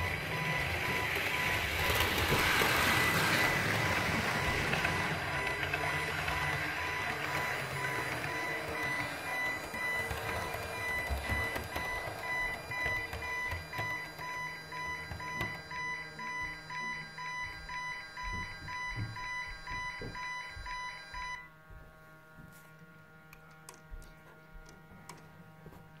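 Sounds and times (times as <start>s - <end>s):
model train running: 0.0s - 14.2s
electronic warning alarm beeping: 0.0s - 21.6s.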